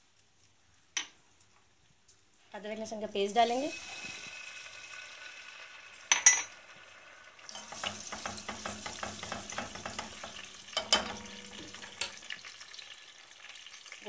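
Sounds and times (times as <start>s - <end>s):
paste sizzling in hot oil: 3.4s - 14.0s
spoon scraping a pan: 7.5s - 12.4s
knocks on a pan: 7.6s - 11.8s.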